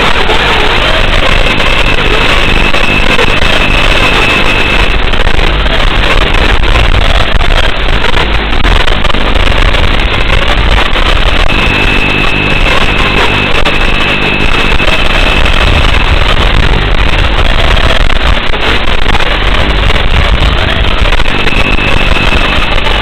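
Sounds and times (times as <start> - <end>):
micro drone motors buzzing: 0.0 - 23.0.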